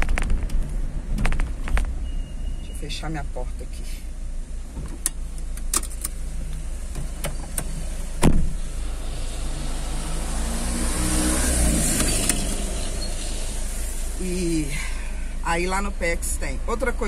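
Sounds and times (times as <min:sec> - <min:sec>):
car engine running: 0:00.0 - 0:17.0
car door clicks: 0:04.7 - 0:08.6
car door thumping shut: 0:07.0 - 0:08.6.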